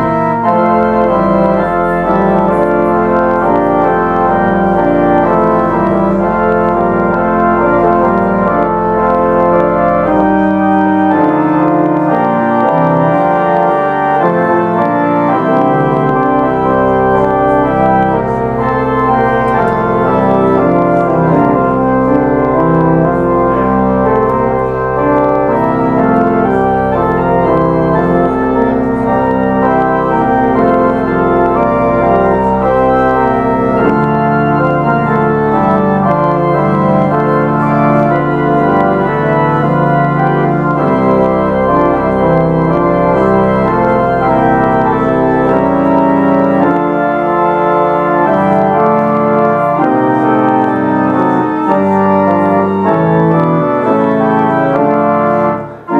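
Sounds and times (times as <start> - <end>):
church organ playing held chords: 0.0 - 55.9.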